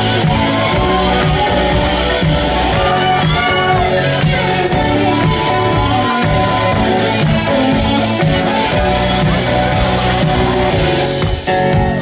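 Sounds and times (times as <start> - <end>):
drums: 0.0 - 12.0
keyboards: 0.0 - 12.0
live band playing amplified music: 0.0 - 12.0.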